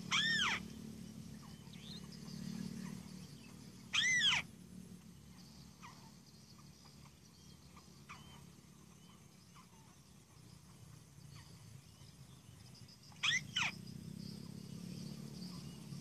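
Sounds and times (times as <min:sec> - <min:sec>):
bird calling rising and falling: 0:00.0 - 0:00.7, 0:03.9 - 0:04.5, 0:13.1 - 0:13.8.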